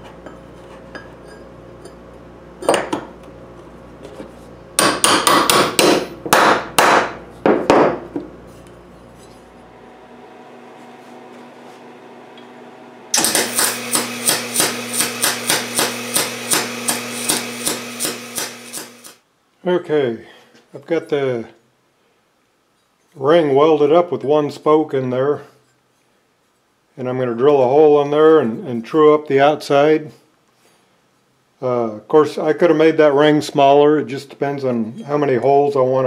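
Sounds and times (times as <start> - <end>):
welder arc crackling: 13.1 - 19.2.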